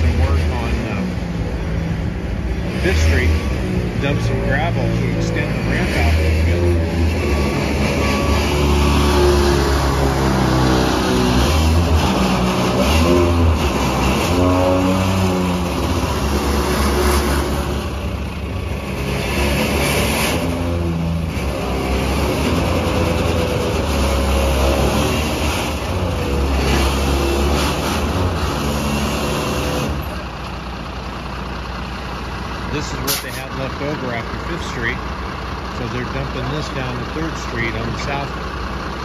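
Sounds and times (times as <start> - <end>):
dump truck engine revving: 0.0 - 39.0.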